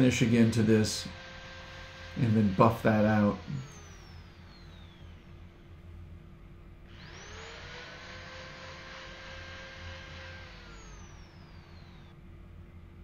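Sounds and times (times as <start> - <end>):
small electric motor whining: 0.0 - 5.9, 6.8 - 12.2.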